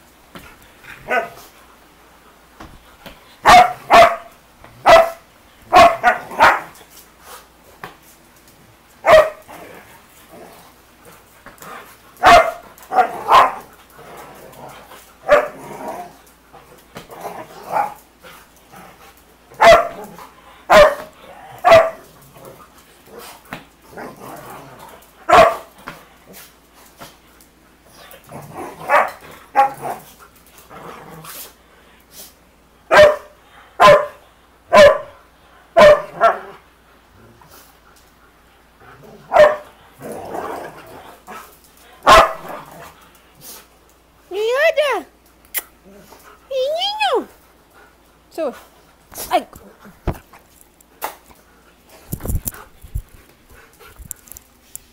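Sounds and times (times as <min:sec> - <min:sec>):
dogs barking: 0:03.4 - 0:06.8, 0:09.0 - 0:09.5, 0:12.2 - 0:13.7, 0:15.2 - 0:15.6, 0:19.6 - 0:22.1, 0:25.3 - 0:25.7, 0:28.8 - 0:30.0, 0:32.9 - 0:35.2, 0:35.8 - 0:36.6, 0:39.2 - 0:39.7, 0:42.0 - 0:42.7.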